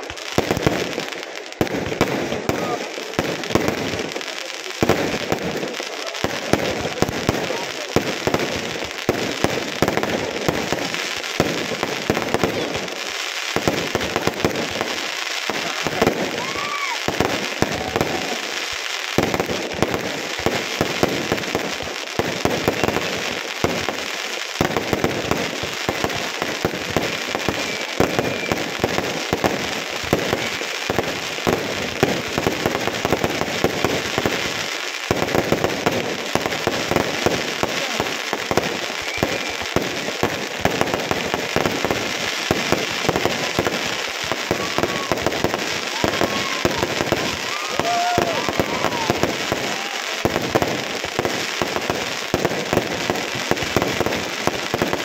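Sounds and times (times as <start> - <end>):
fireworks crackling and banging: 0.0 - 55.0.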